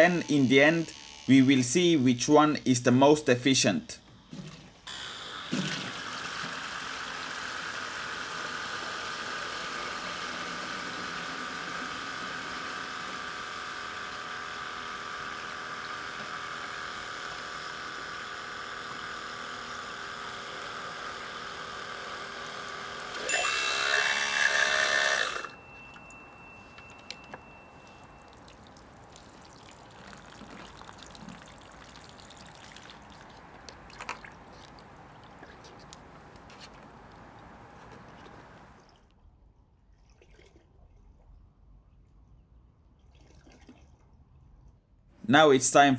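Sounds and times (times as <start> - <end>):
water pump whining: 0.0 - 2.2, 4.2 - 39.1
water pouring into plastic jug: 27.0 - 39.1.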